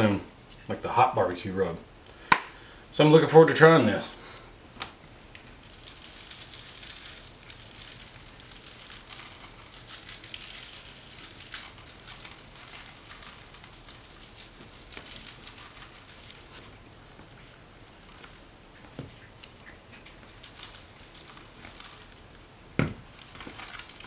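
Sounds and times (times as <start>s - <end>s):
granules pattering on a tray: 4.8s - 24.0s.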